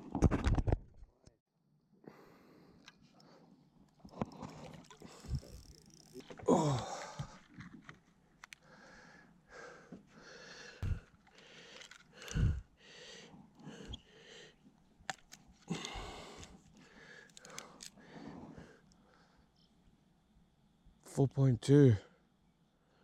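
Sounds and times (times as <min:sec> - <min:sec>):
person breathing heavily: 0:02.0 - 0:03.5, 0:04.2 - 0:05.6, 0:06.5 - 0:07.5, 0:08.6 - 0:14.6, 0:15.7 - 0:19.5.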